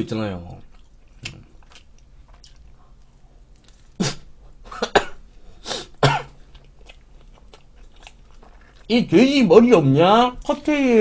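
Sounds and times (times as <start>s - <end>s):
man coughing: 4.0s - 6.4s.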